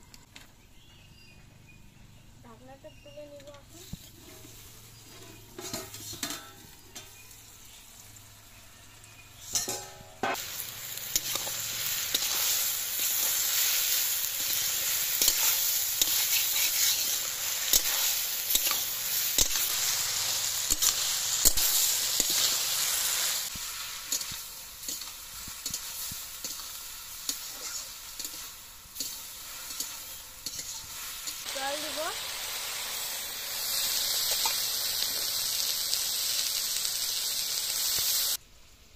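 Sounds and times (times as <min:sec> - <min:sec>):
vegetables sizzling in a pan: 0:00.1 - 0:38.9
spatula scraping a pan: 0:03.8 - 0:07.2, 0:09.4 - 0:10.4, 0:11.0 - 0:31.5
metal clank: 0:05.5 - 0:07.2, 0:09.5 - 0:10.4.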